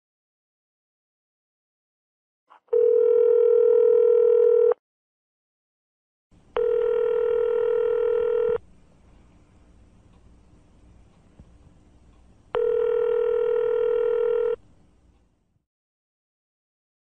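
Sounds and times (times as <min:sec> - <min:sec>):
telephone ringing tone beeps: 0:02.7 - 0:04.8, 0:06.6 - 0:08.6, 0:12.6 - 0:14.6
faint background noise: 0:06.3 - 0:15.6.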